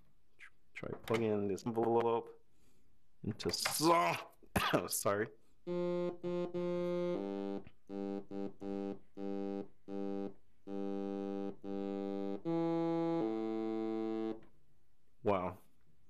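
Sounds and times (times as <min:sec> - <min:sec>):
synthesizer notes: 0:05.7 - 0:14.5.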